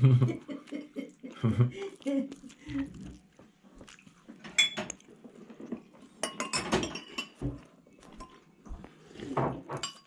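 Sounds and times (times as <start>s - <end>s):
crockery and cutlery clinking: 4.5s - 5.0s, 5.7s - 8.5s, 9.3s - 10.0s.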